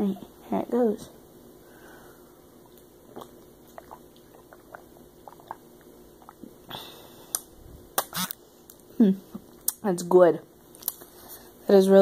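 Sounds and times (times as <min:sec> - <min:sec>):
breathy exhale: 0:01.6 - 0:02.4
person gulping a drink: 0:02.6 - 0:08.3.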